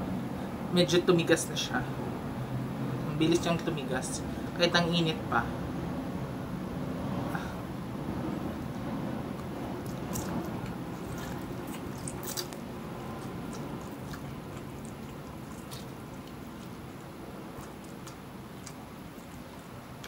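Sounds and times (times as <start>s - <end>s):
chewing and slurping: 8.4s - 20.0s
wet mouth clicks: 9.3s - 20.0s.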